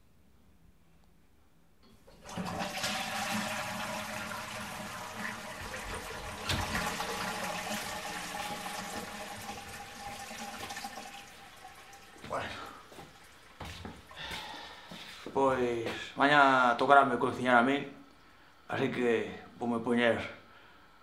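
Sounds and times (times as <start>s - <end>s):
toilet flushing: 2.0s - 15.1s
cistern refilling with whistle: 2.2s - 13.5s.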